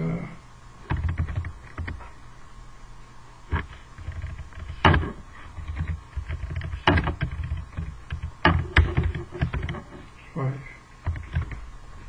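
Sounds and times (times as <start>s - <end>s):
typing on computer keyboard: 0.9s - 2.0s.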